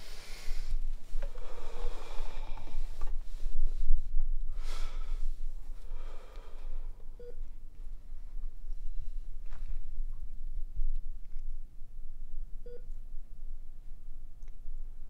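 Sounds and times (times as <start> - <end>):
man breathing heavily: 0.0 - 7.1
low steady hum: 0.0 - 15.0.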